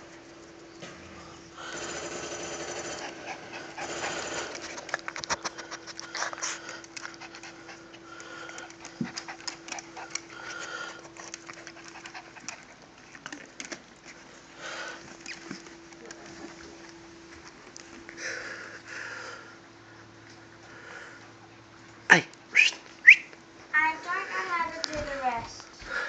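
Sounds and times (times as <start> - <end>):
puppy panting: 1.4 - 19.3.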